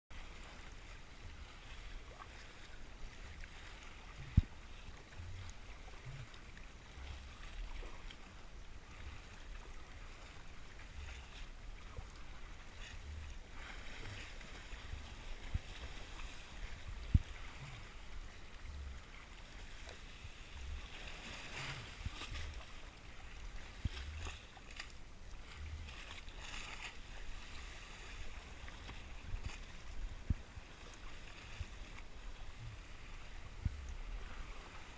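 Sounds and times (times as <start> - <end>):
water splashing against hull: 0.1 - 34.9
dull low thuds: 4.1 - 5.4, 12.9 - 19.1, 29.0 - 30.7.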